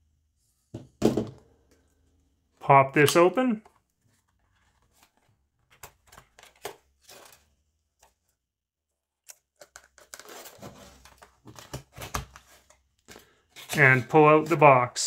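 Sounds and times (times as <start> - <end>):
cardboard rustling and scraping: 3.8 - 7.5, 10.0 - 12.8.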